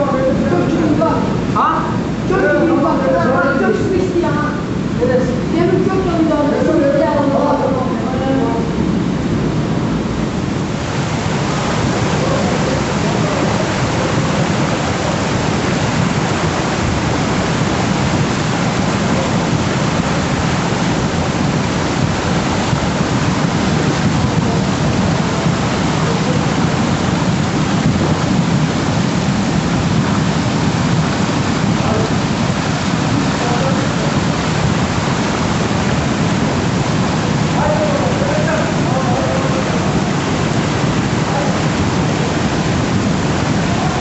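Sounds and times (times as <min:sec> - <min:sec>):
floodwater rushing: 0:00.0 - 0:44.0
rain: 0:00.0 - 0:44.0.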